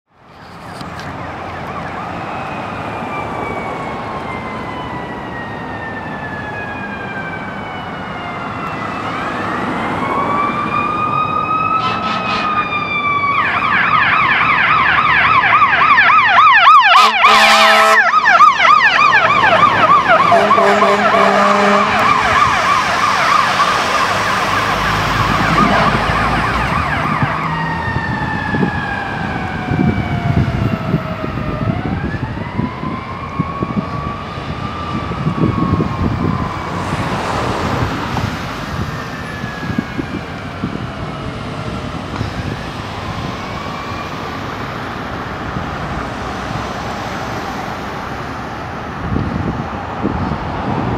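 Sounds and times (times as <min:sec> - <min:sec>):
fire truck siren wailing and yelping: 0:00.4 - 0:50.9
air horn blasts: 0:11.8 - 0:12.7, 0:16.9 - 0:18.1, 0:20.2 - 0:22.3.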